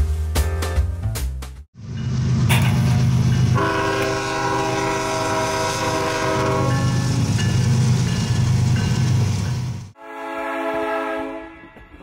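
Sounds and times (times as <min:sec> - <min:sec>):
diesel locomotive rumbling: 0:01.8 - 0:10.0
train air horn: 0:03.6 - 0:07.4, 0:10.0 - 0:11.9.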